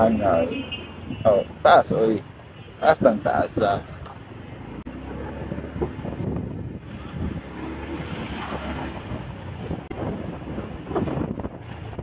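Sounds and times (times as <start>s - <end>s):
street traffic: 0.0s - 12.0s
wind rushing over microphone: 4.6s - 12.0s.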